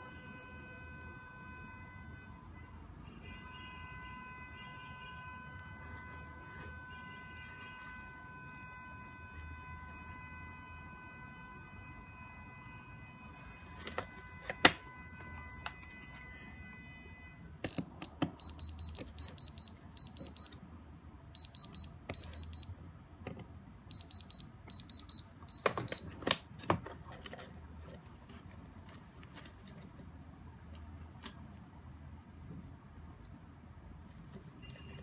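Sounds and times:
diamond tester beeping: 0:17.6 - 0:20.6, 0:21.4 - 0:22.7, 0:23.9 - 0:26.1.

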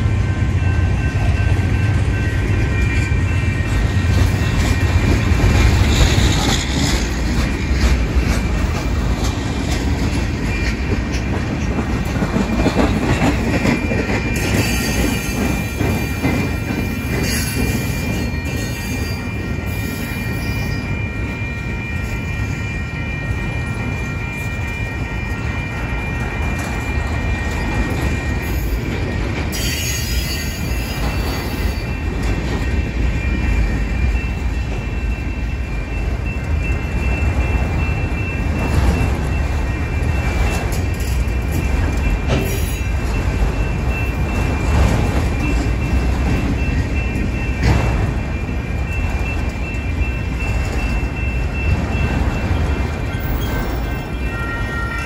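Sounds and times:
train wheels rumbling on rail: 0:00.0 - 0:55.0
high wheel squeal: 0:13.8 - 0:32.1, 0:50.3 - 0:55.0.

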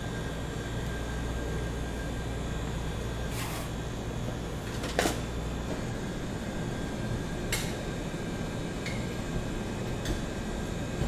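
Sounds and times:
mechanical hum of shop equipment: 0:00.0 - 0:11.0.

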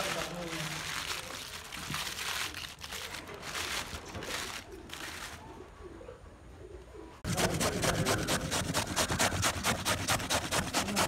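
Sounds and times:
potato grated on metal grater: 0:07.3 - 0:11.0.

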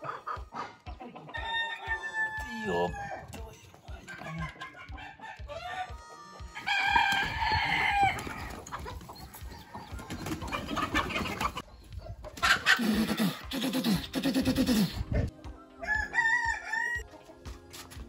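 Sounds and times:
chickens clucking and squawking: 0:00.0 - 0:18.0
rooster crowing: 0:01.4 - 0:03.3, 0:15.7 - 0:17.0.

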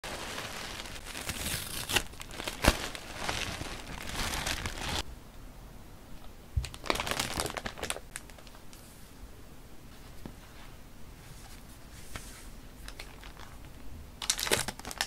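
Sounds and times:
plastic packets crinkling: 0:00.0 - 0:05.0, 0:06.6 - 0:08.6, 0:12.8 - 0:15.0
tissue paper crinkling: 0:00.0 - 0:05.0, 0:06.7 - 0:08.5, 0:14.2 - 0:15.0.

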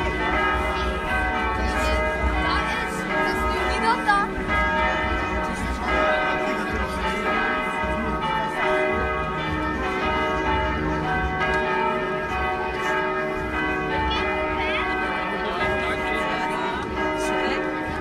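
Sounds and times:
bells pealing: 0:00.0 - 0:18.0.

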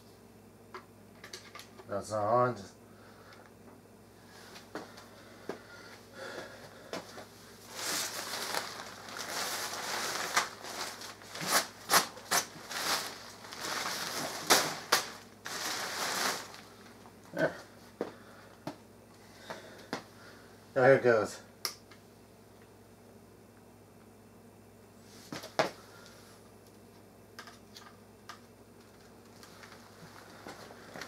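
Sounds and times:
fabric rustling and crinkling: 0:07.6 - 0:17.0
fabric cracks: 0:07.7 - 0:16.8.

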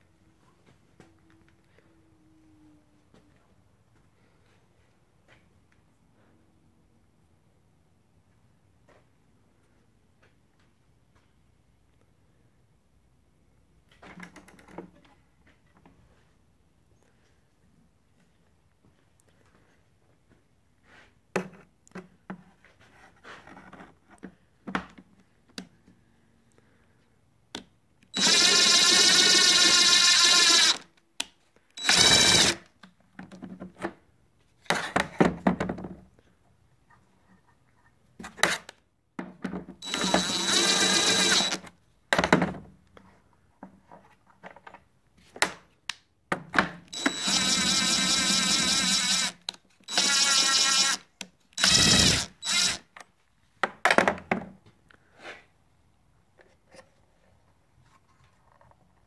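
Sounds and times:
cordless drill whining: 0:28.2 - 0:30.9, 0:31.8 - 0:32.6, 0:39.8 - 0:41.7, 0:46.9 - 0:52.9.

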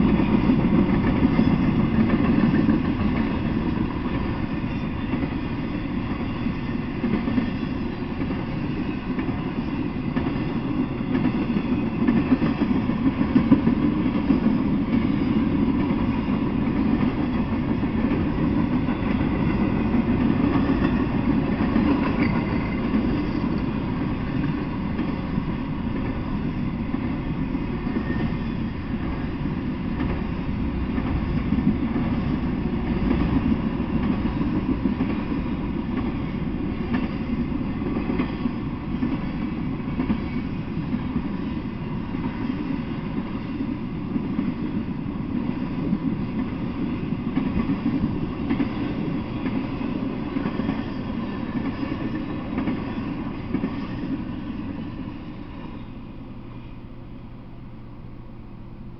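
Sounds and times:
freight train wheels rumbling on rails: 0:00.0 - 0:58.9.

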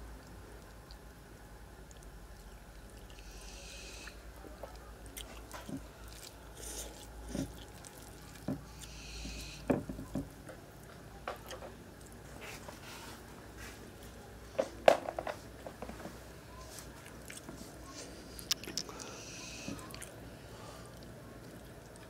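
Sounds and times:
wet chewing: 0:04.0 - 0:09.4, 0:16.7 - 0:22.0.

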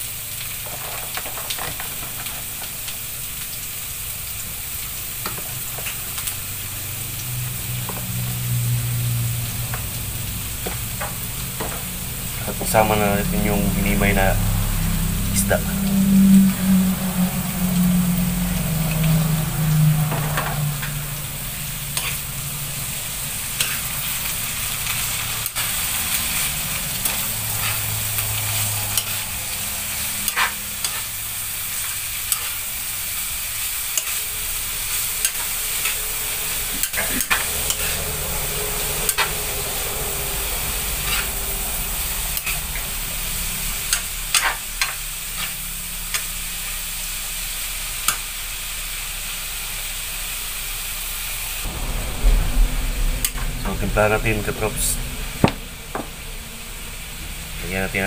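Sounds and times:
vegetables sizzling in a wok: 0:00.0 - 0:53.8, 0:54.7 - 0:58.0
low hum: 0:01.6 - 0:49.8, 0:50.4 - 0:57.7
metal spatula scraping pan: 0:14.4 - 0:41.6, 0:43.6 - 0:46.3.

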